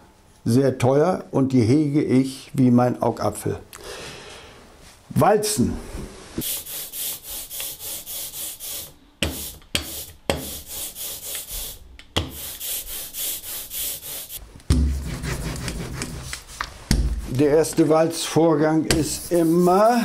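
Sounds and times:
ink roller rubbing through tacky ink: 0:06.4 - 0:16.6, 0:19.1 - 0:20.0.

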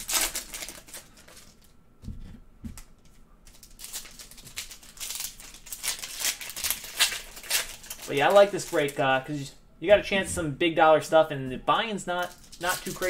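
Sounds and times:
foil wrapper crinkling and tearing: 0:00.0 - 0:01.7, 0:03.4 - 0:09.0, 0:12.2 - 0:13.0.

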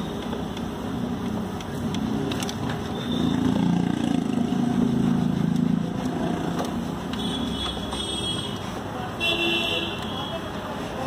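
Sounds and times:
vehicle engine running: 0:00.7 - 0:09.0.

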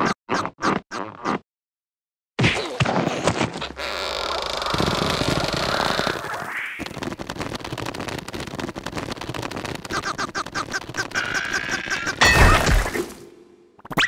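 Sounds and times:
rapid scratching in dirt: 0:03.2 - 0:12.2.

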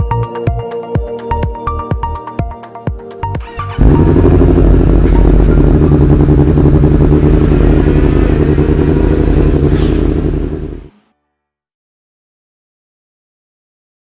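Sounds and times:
racing motorcycle engine: 0:03.4 - 0:11.1.

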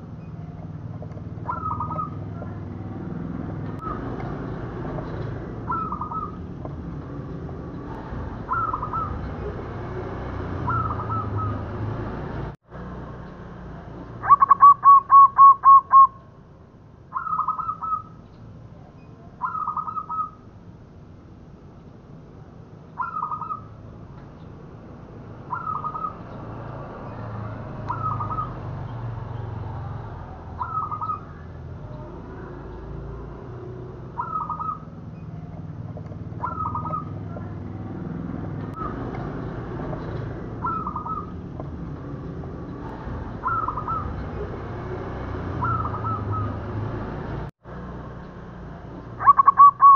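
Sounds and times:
dove cooing: 0:01.4 - 0:02.8, 0:05.6 - 0:06.5, 0:08.4 - 0:09.5, 0:10.6 - 0:11.8, 0:14.2 - 0:16.2, 0:30.6 - 0:32.6, 0:34.1 - 0:35.4, 0:36.3 - 0:37.5, 0:40.6 - 0:41.4, 0:43.3 - 0:44.5, 0:45.6 - 0:46.7, 0:49.2 - 0:49.9.

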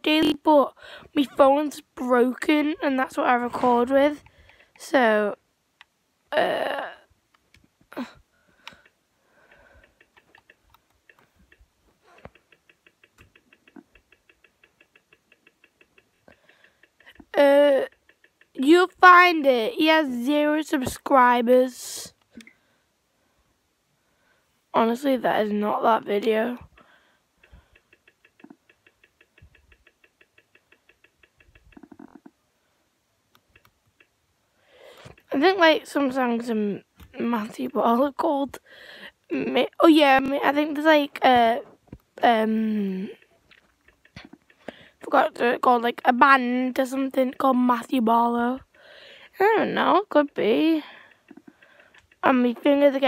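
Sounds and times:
rapid faint ticking: 0:00.0 - 0:53.0
soft clicks and knocks: 0:08.5 - 0:18.7.

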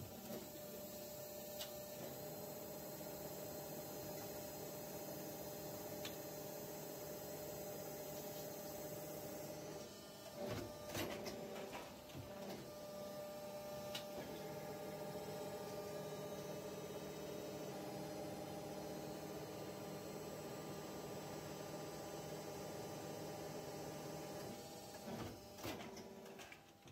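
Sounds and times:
injection molding machine humming: 0:00.1 - 0:25.6.

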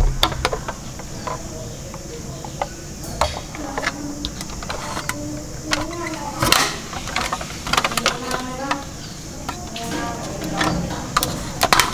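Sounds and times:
toy plastic clicks and knocks: 0:02.4 - 0:11.9.

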